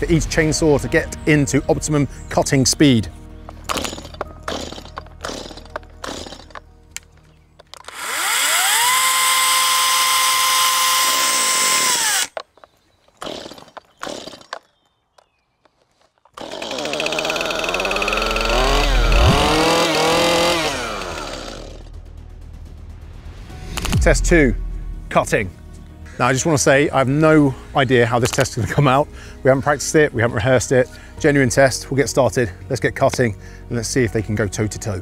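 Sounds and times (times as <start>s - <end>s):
petrol chainsaw revving: 3.7s - 6.6s, 7.8s - 12.4s, 13.2s - 14.6s, 16.3s - 21.9s
battery chainsaw high whine: 3.7s - 6.7s, 7.8s - 12.4s, 13.2s - 14.6s, 16.3s - 21.9s.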